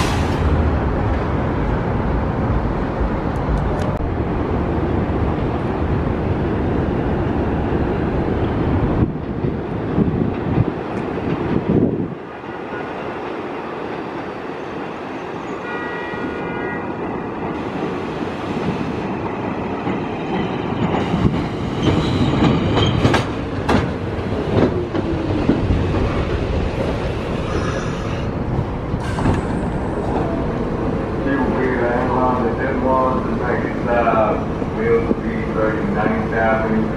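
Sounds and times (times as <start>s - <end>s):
train wheels clacking over rail joints: 19.3s - 27.1s.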